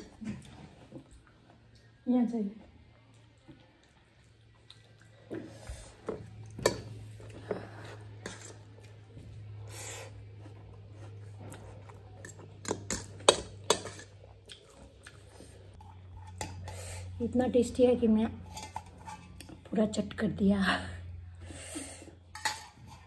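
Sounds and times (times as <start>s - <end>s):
fork clinking on a metal bowl: 12.2s - 14.1s.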